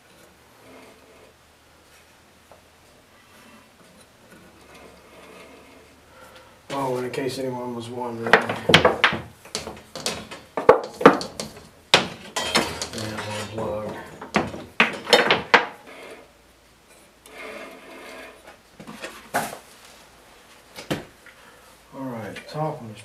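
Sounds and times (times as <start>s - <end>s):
bandsaw metallic clicks and knocks: 9.5s - 13.7s.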